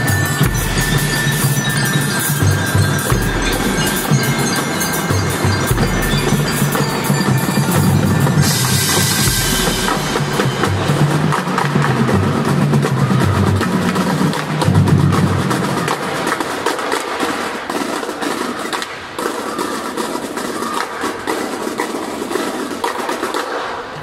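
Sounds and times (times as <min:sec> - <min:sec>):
marimbas and vibraphones: 0:00.0 - 0:12.7
drums: 0:00.0 - 0:24.0.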